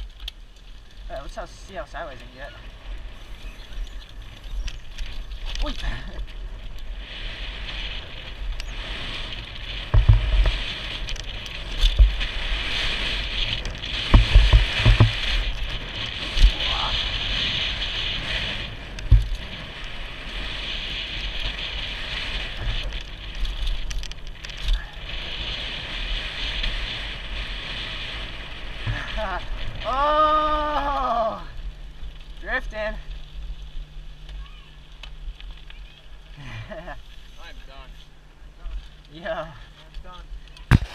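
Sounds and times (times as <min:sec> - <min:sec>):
tyre and wind rush: 0:01.0 - 0:33.0
bike landing thumps: 0:09.8 - 0:10.8, 0:13.9 - 0:15.6, 0:19.0 - 0:19.5, 0:40.6 - 0:40.9.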